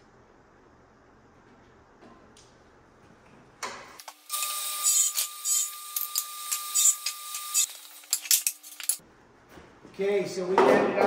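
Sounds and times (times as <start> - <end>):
table saw cutting plywood: 4.3 - 8.0.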